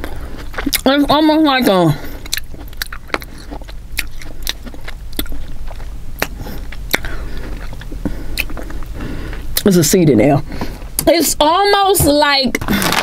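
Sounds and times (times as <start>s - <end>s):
close chewing: 0.0s - 1.2s, 2.0s - 9.7s
wet mouth clicks: 2.3s - 8.7s.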